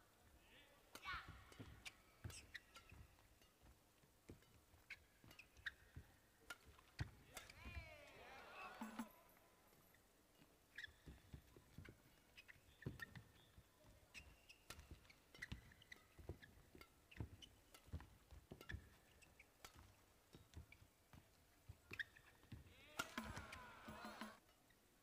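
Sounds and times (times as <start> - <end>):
racket hitting shuttlecock: 0.9 - 3.6, 4.3 - 9.1, 14.1 - 20.6, 21.9 - 24.4
shoe squeaks on court: 1.3 - 3.5, 4.3 - 7.6, 10.7 - 20.9, 21.8 - 24.4
person shouting: 22.8 - 24.4.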